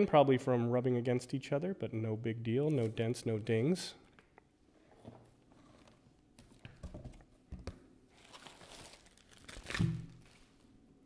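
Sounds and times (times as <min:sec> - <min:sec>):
bubble wrap rustling and crinkling: 0:08.1 - 0:10.8.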